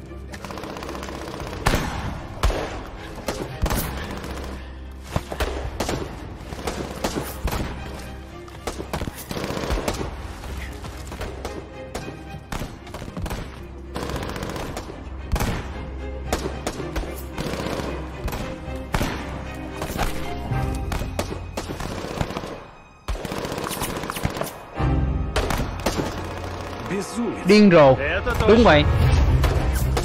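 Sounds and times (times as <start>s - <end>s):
low music score: 0.0s - 30.0s
rifle and machine-gun shots: 0.3s - 4.7s, 5.4s - 7.8s, 8.6s - 10.2s, 11.2s - 19.3s, 20.9s - 24.7s, 25.4s - 27.2s.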